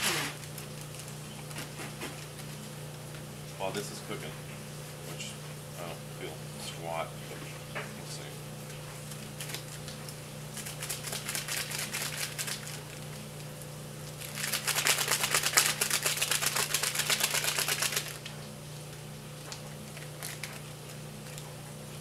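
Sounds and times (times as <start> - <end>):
ration packet shaken and crinkled: 10.6 - 13.1, 14.1 - 18.3, 19.9 - 21.4.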